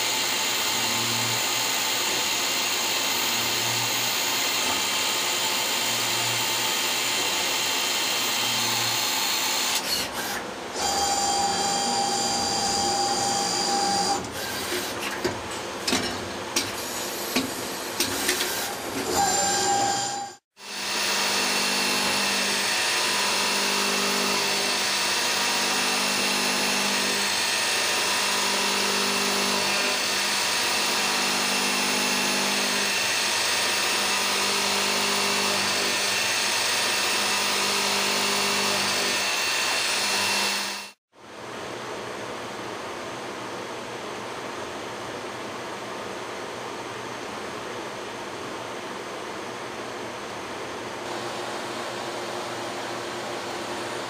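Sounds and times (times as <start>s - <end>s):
lathe machining noise: 16.9s - 41.0s.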